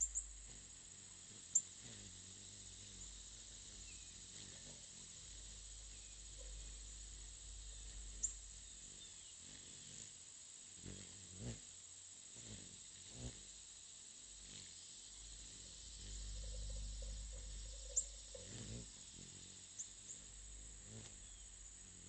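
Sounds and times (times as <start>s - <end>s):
faint bird twittering: 0.0s - 10.1s, 14.4s - 22.0s
hummingbird chip calls: 0.0s - 10.2s, 14.4s - 22.0s.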